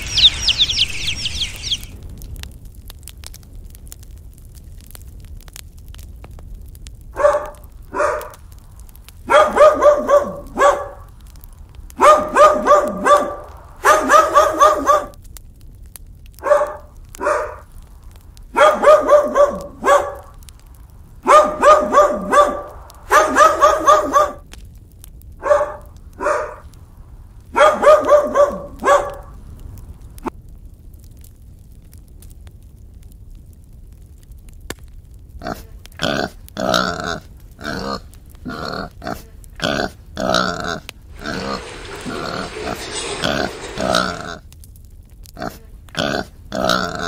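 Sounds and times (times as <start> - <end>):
dog barking: 7.2 - 8.4, 9.2 - 11.1, 12.0 - 15.2, 16.4 - 17.7, 18.5 - 20.4, 21.2 - 24.4, 25.4 - 26.6, 27.5 - 29.4.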